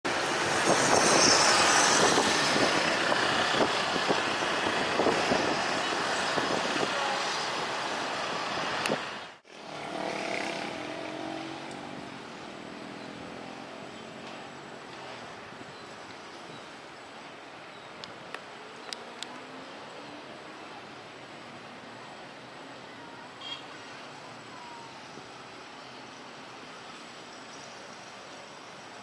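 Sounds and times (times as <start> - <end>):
motorcycles and cars passing: 0.1 - 16.6.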